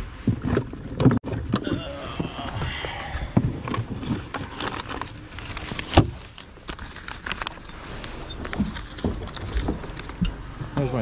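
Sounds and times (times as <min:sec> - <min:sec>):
paper envelope rustling: 0:03.8 - 0:10.2.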